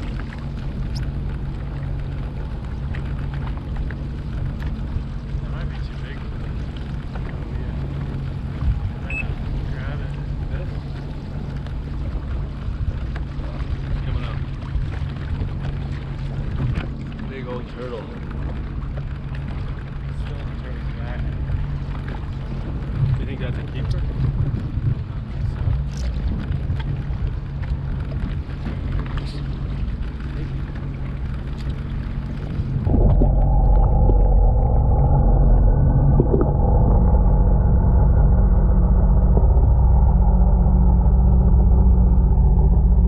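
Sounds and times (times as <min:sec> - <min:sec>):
water sloshing against hull: 0:00.0 - 0:43.0
watercraft engine idling: 0:00.0 - 0:43.0
wind noise: 0:22.4 - 0:30.0, 0:31.2 - 0:43.0.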